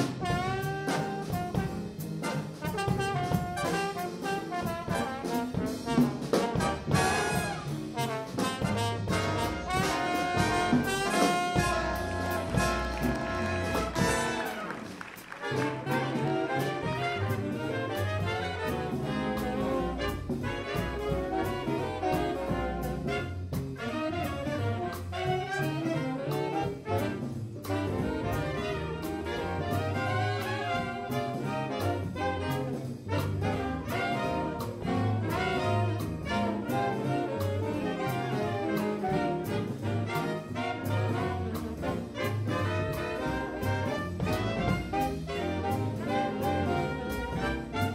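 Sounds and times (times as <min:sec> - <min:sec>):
jazz big band playing: 0:00.0 - 0:47.9
string bass walking: 0:09.2 - 0:14.4.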